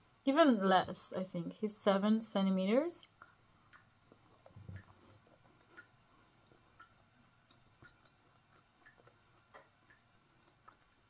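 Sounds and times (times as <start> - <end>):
faint soft ticks: 3.0 - 11.0.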